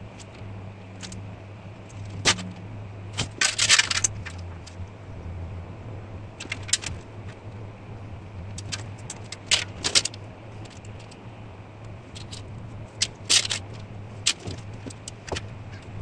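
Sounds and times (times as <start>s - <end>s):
metal clattering rattle: 1.9s - 4.8s, 6.4s - 7.1s, 8.6s - 11.1s, 12.1s - 15.9s.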